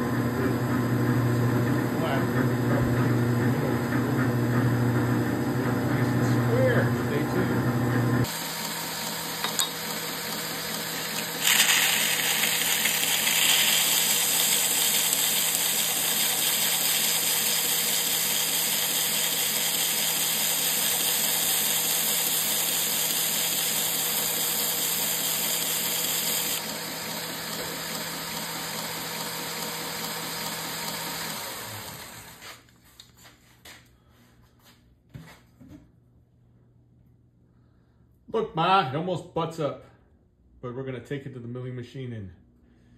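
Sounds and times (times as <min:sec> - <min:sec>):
belt sander running: 0:00.0 - 0:32.6.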